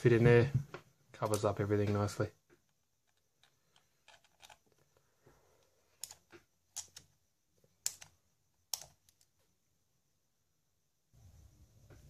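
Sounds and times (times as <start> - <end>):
small hard parts clicking: 1.2 - 7.2, 7.8 - 9.3.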